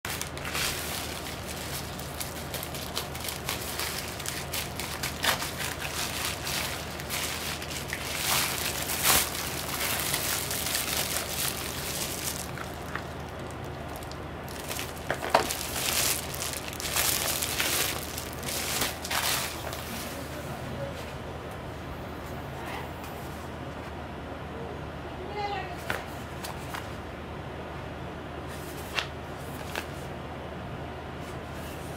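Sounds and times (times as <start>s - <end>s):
bubble wrap crinkling: 0.0s - 20.2s
steady low hum: 0.0s - 31.9s
scissors cutting plastic mailer: 0.1s - 19.8s.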